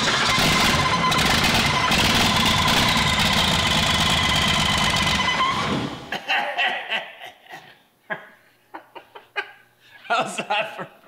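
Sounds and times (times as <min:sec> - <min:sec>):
diesel engine running: 0:00.0 - 0:06.1
engine winding down: 0:00.0 - 0:06.1
vacuum pump whine: 0:00.0 - 0:06.1.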